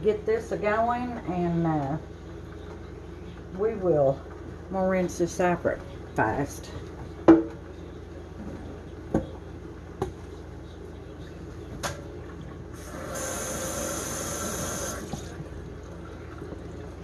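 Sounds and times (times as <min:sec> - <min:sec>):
water running from tap: 0:12.8 - 0:15.4.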